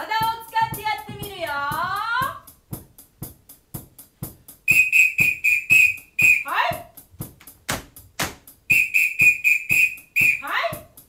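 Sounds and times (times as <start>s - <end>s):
metal whistle blasts: 4.7s - 6.6s, 8.7s - 10.5s
sharp claps: 7.4s - 8.5s.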